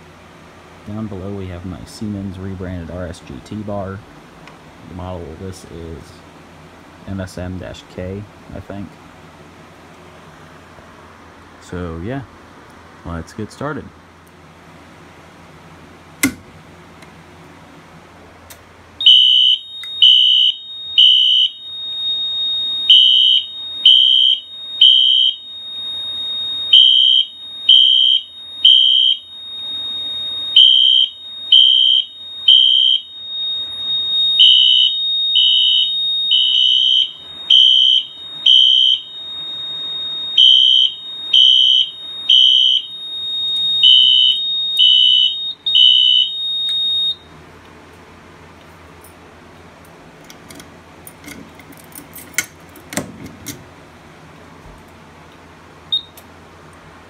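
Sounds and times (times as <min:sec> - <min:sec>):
fire alarm horn blasts: 0:19.0 - 0:47.3, 0:55.9 - 0:56.2
steady high tone: 0:19.0 - 0:47.4.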